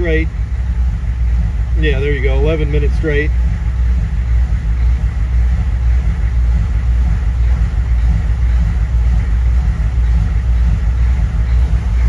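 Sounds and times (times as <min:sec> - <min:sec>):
diesel engine idling unevenly: 0:00.0 - 0:12.0.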